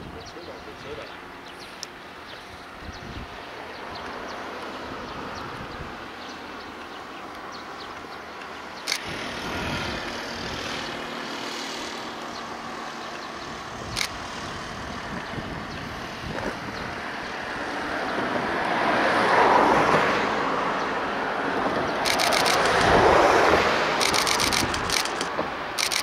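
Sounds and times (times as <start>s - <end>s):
rushing vehicle noise: 0.0s - 26.0s
sharp click: 22.0s - 23.0s, 24.0s - 26.0s.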